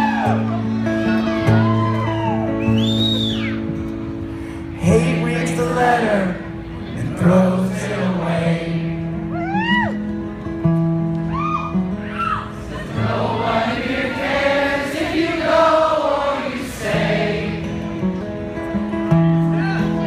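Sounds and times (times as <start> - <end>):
acoustic guitar strumming: 0.0 - 2.7, 3.5 - 15.1, 15.7 - 20.0
audience singing along: 7.0 - 9.2, 12.6 - 18.2.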